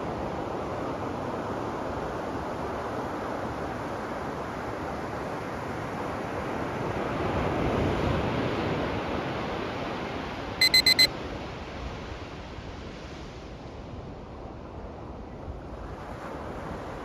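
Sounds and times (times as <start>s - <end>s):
digital timer alarm beeping: 10.6s - 11.1s.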